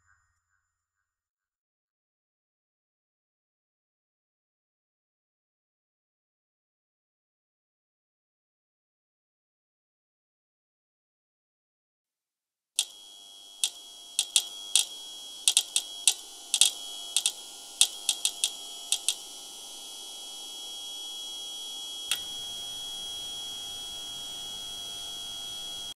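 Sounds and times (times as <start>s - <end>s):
steady high-pitched tone: 12.8s - 26.0s
sharp clicks: 13.6s - 19.3s.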